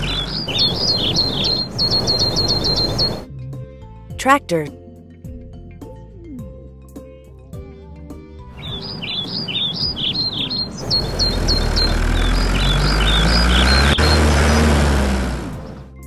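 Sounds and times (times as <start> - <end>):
tractor engine hum: 0.0 - 3.2, 8.5 - 16.0
birds chirping: 0.0 - 3.3, 8.6 - 16.0
light music: 0.1 - 12.7.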